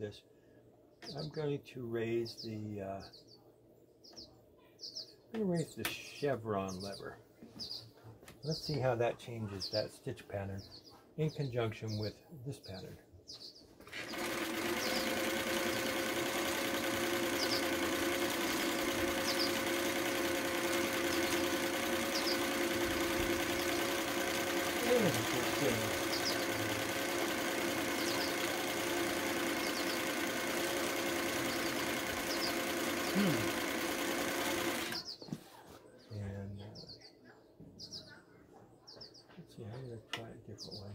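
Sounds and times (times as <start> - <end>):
sewing machine running: 13.8 - 35.0.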